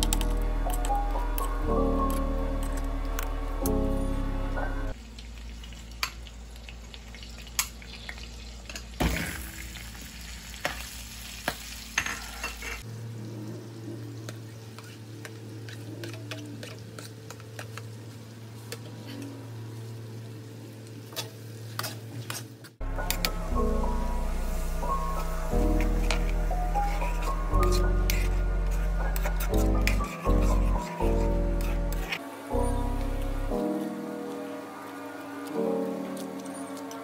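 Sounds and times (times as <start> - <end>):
butter and oil sizzling in a wok: 4.9 - 18.8, 19.4 - 34.9
metal ladle scraping a pan: 25.8 - 32.2.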